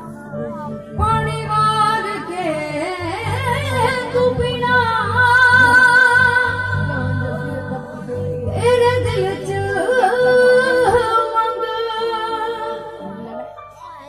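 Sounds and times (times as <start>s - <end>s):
woman singing devotional song: 0.0s - 13.6s
keyboard: 0.0s - 14.0s
dholak drum: 0.8s - 11.8s.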